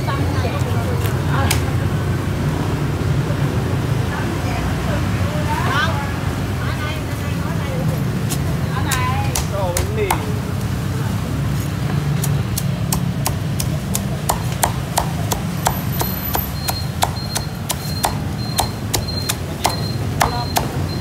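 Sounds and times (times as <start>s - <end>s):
cleaver chopping on wooden board: 8.9s - 10.4s, 12.2s - 21.0s.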